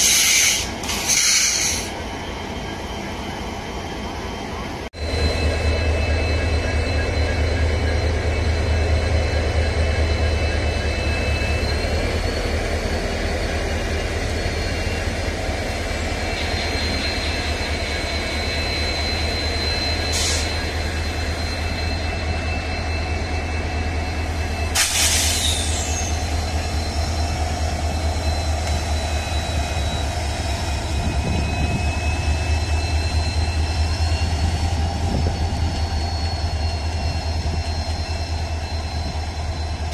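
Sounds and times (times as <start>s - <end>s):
diesel locomotive engines droning: 0.0s - 39.9s
air hiss: 24.8s - 26.0s.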